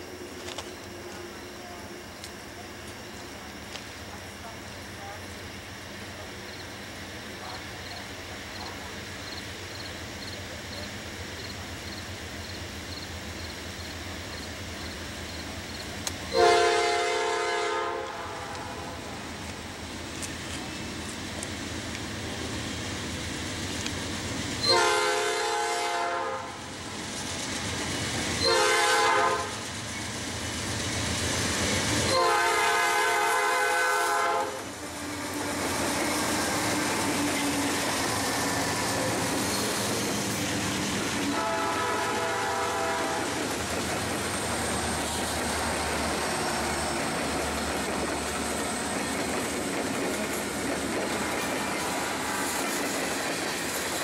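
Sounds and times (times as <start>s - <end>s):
diesel locomotive engines rumbling: 0.0s - 54.0s
locomotive air horn blasts: 16.3s - 19.1s, 24.6s - 26.6s, 28.4s - 29.6s, 32.0s - 35.5s, 41.3s - 43.4s
train wheels clattering on rails: 34.4s - 54.0s.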